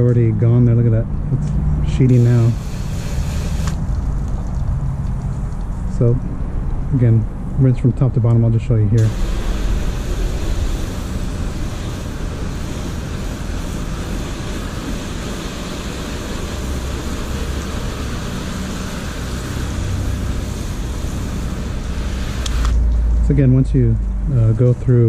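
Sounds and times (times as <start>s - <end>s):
hose spraying water on car: 2.0s - 5.8s, 9.0s - 22.8s.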